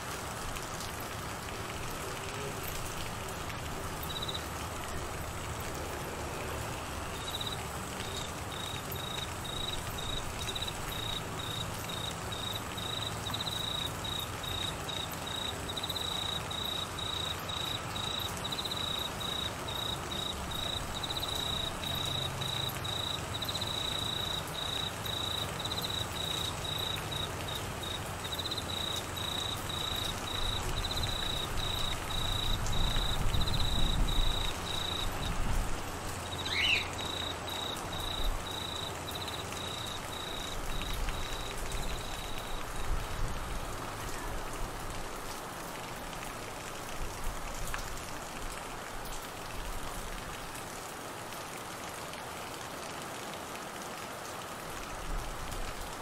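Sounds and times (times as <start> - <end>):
rain falling: 0.0 - 56.0
cricket chirping: 4.0 - 4.5, 7.1 - 42.7.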